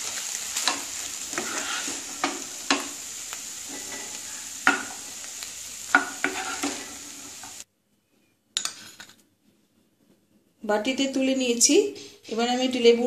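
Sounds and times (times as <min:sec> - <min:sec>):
pan sizzling: 0:00.0 - 0:07.6
spatula stirring vegetables in wok: 0:00.0 - 0:07.6
spatula knocking against pan: 0:05.9 - 0:06.4.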